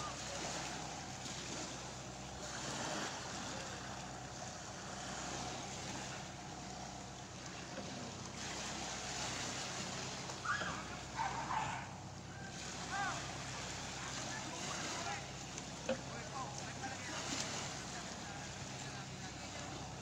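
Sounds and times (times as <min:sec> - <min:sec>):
boat engine running: 0:00.0 - 0:20.0
sea noise: 0:00.0 - 0:20.0
wind: 0:00.0 - 0:20.0.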